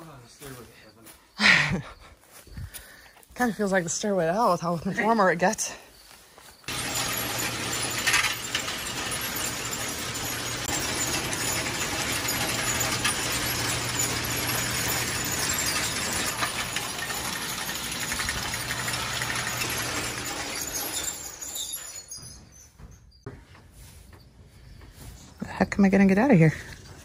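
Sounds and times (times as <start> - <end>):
conveyor chain clattering: 6.7 - 22.7.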